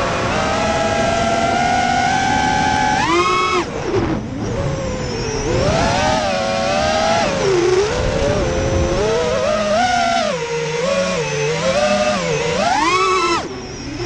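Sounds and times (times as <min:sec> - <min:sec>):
drone motors and propellers whining: 0:00.0 - 0:14.0.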